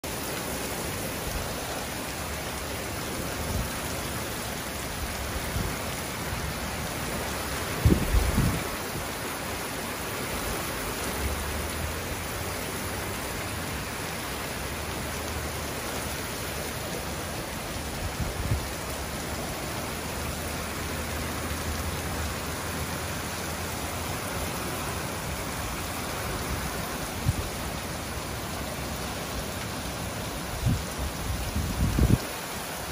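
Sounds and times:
steady rain falling: 0.0s - 32.9s.

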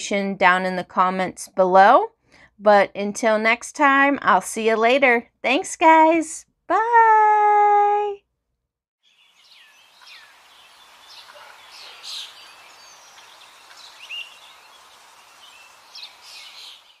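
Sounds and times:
birds chirping: 9.1s - 17.0s
outdoor ambience: 9.1s - 17.0s.

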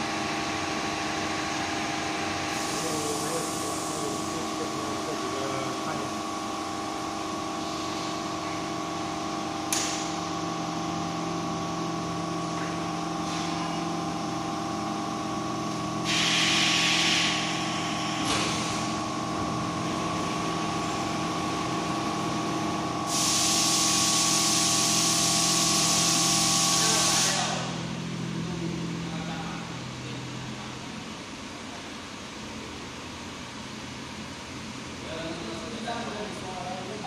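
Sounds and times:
welding machine humming: 6.7s - 29.0s.

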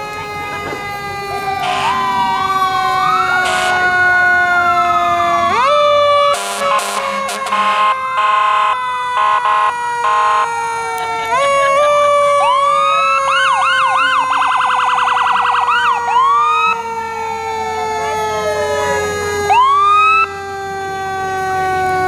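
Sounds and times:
fire engine horn blasts: 0.0s - 13.2s
electronic siren wailing: 0.0s - 22.0s
siren winding down: 0.0s - 22.0s.

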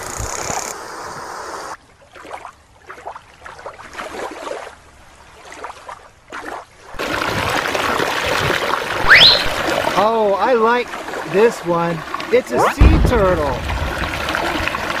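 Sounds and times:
creek rushing over rocks: 7.0s - 15.0s.

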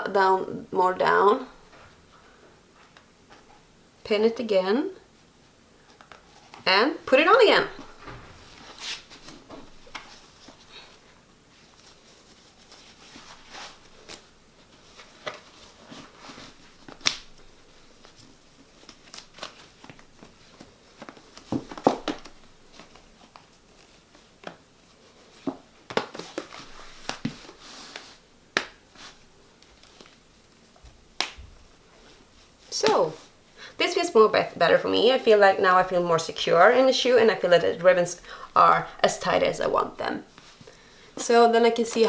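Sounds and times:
soft rustling: 5.1s - 42.0s.

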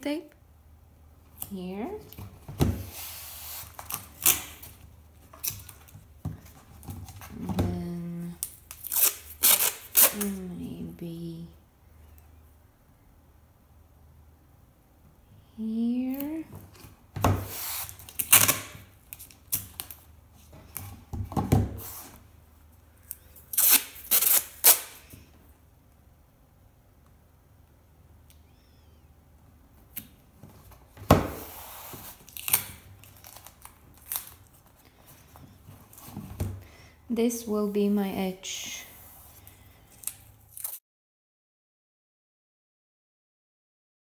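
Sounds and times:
hands rubbing tape onto canvas: 2.8s - 4.7s, 17.4s - 18.7s
masking tape pulled off roll: 2.9s - 5.9s, 8.4s - 10.4s, 17.4s - 20.0s, 23.0s - 25.2s, 31.4s - 34.6s, 39.9s - 40.8s.

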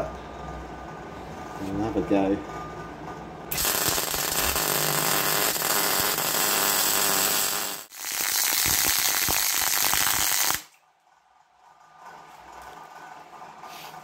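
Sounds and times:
electric arc welder crackling: 3.5s - 10.8s.

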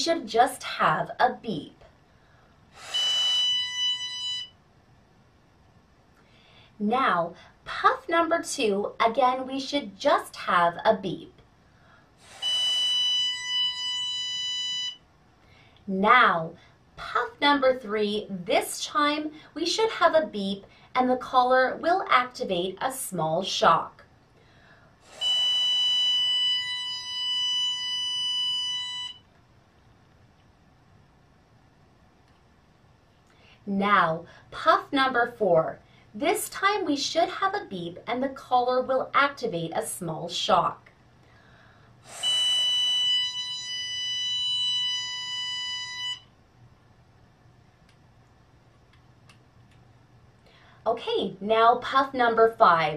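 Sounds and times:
steady high beep: 2.8s - 4.6s, 12.2s - 15.0s, 25.1s - 29.3s, 42.0s - 46.4s.

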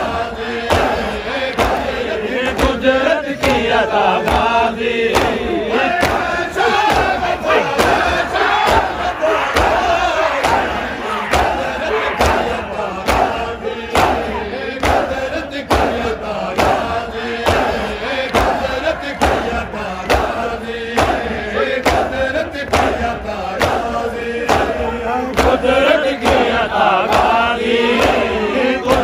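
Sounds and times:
men chanting in unison: 0.0s - 29.0s
hands beating on chests: 5.1s - 16.0s.

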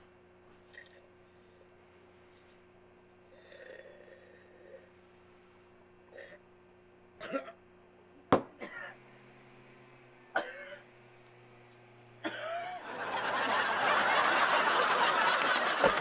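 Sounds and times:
man coughing and gasping: 7.2s - 7.6s, 8.6s - 9.0s, 10.3s - 10.8s, 12.2s - 12.8s
crowd laughing: 12.2s - 16.0s.

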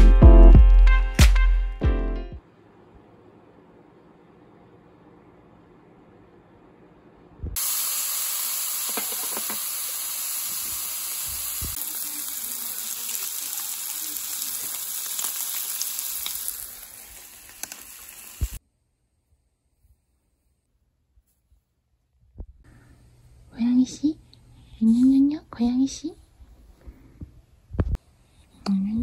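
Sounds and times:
meat sizzling on grill: 7.6s - 18.6s.

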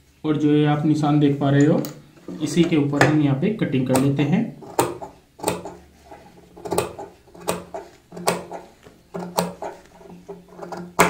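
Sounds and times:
scissors snipping fabric: 4.0s - 5.8s, 6.6s - 9.9s.

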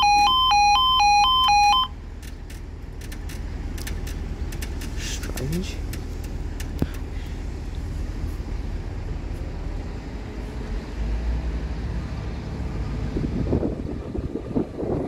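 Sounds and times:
distant diesel train rumble: 1.9s - 15.0s
wind on microphone: 12.9s - 15.0s.

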